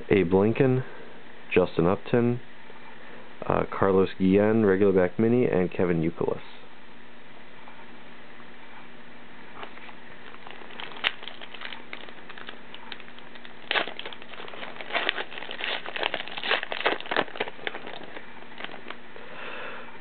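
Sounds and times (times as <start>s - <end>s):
wrapper tearing and crinkling: 9.6s - 19.0s.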